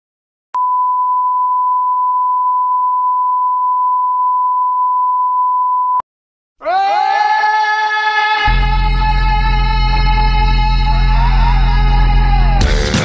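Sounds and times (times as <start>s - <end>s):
electronic test tone beep: 0.6s - 6.0s.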